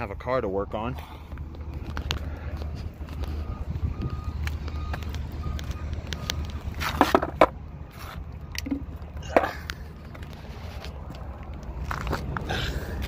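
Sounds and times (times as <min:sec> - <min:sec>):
steady low rumble: 0:00.0 - 0:13.0
skateboard clattering on concrete: 0:06.8 - 0:07.5.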